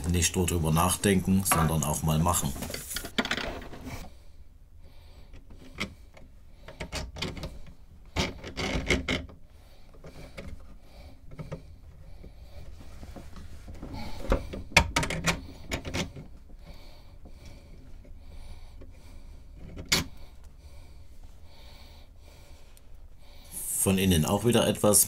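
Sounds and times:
tools knocking and scraping: 0:01.4 - 0:04.1, 0:05.4 - 0:09.4, 0:10.0 - 0:16.6, 0:18.8 - 0:20.2.

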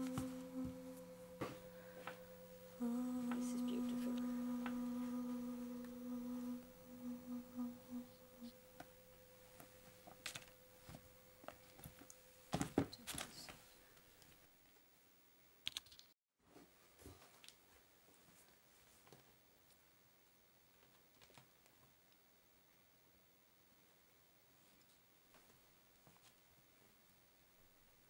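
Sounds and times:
person humming: 0:00.0 - 0:09.0.

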